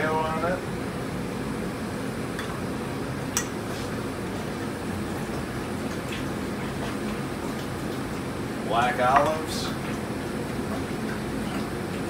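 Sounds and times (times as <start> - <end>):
kitchen equipment hum: 0.0 - 12.0
spoon tapping ramekin: 9.1 - 9.5.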